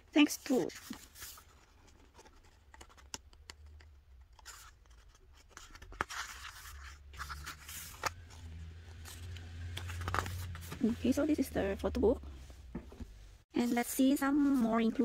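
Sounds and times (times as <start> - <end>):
paper pages rustling: 0.2 - 11.2.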